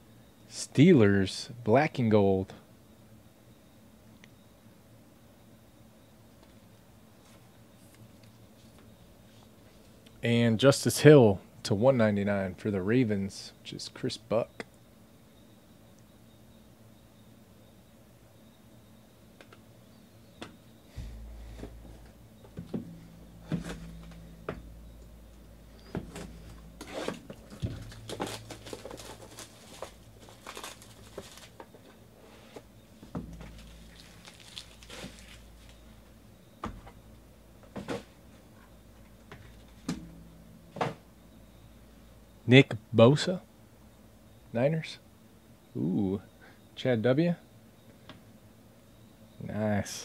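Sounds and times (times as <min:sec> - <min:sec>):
card packaging rustling and crinkling: 0:26.2 - 0:31.9, 0:33.4 - 0:35.8.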